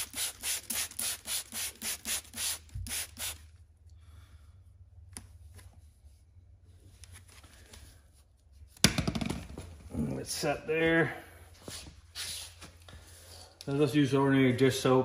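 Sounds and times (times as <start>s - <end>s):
spray bottle hissing bursts: 0.0s - 3.5s.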